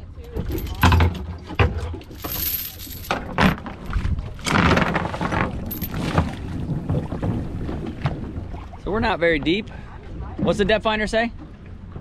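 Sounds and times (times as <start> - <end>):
anchor chain knocking: 0.3 - 6.4
anchor splashing into water: 3.2 - 9.6.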